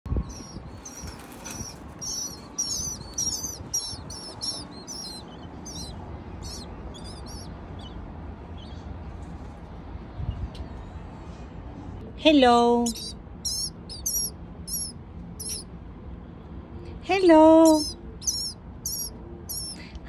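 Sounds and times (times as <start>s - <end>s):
nestlings chirping: 0.1s - 9.2s, 12.6s - 15.7s, 17.2s - 19.8s.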